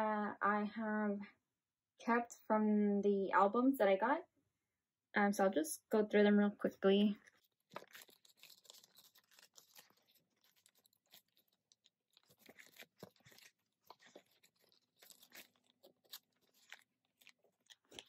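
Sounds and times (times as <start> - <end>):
plastic pages crinkling: 7.2 - 18.0.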